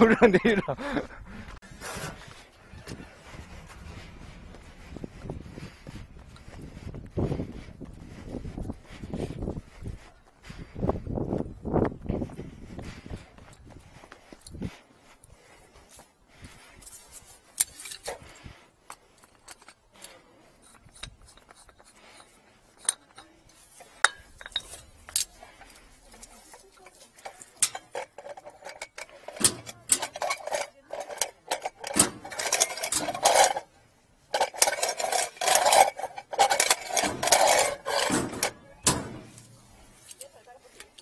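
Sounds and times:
metallic clinks and clattering: 18.9s - 41.0s.

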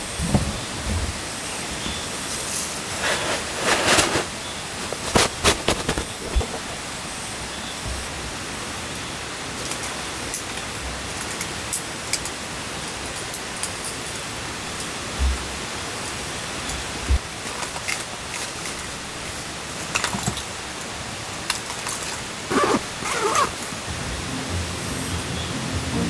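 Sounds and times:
steady background hiss: 0.0s - 26.0s
fabric rustling: 2.9s - 6.7s, 22.5s - 23.8s.

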